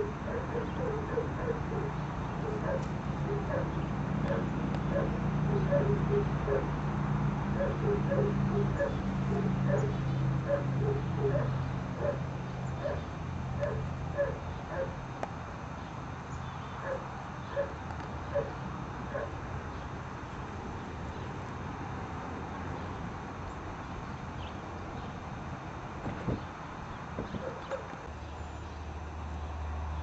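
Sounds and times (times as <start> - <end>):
puppies yipping and whining: 0.2 - 6.7, 7.6 - 12.2.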